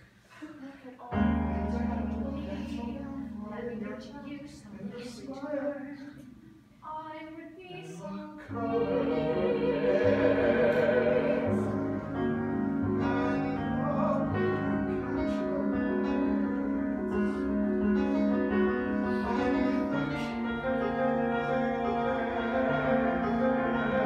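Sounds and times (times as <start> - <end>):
piano accompaniment: 1.1 - 4.6, 8.5 - 24.0
person singing with vibrato: 7.7 - 24.0.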